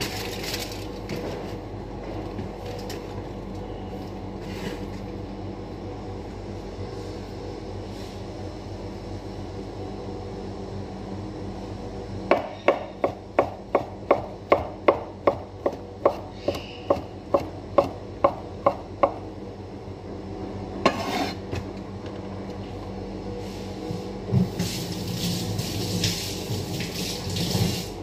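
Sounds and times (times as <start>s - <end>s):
knife chopping on wooden board: 12.3s - 19.2s.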